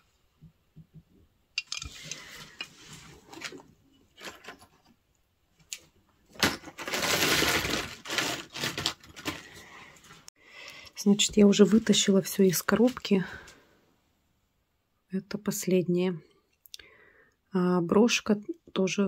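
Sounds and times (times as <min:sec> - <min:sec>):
metal jewellery clicking: 0:01.6 - 0:01.9
rustling: 0:01.6 - 0:05.0, 0:05.6 - 0:10.3.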